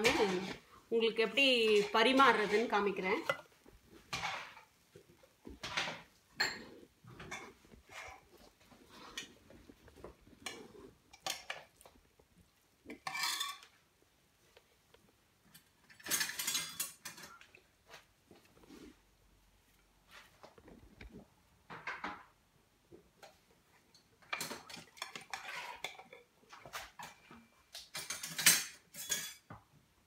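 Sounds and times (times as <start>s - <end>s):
spoons clinking and scraping dishes: 0.0s - 0.6s, 1.2s - 4.8s, 5.4s - 12.0s, 12.9s - 13.8s, 15.5s - 17.6s, 23.2s - 29.5s.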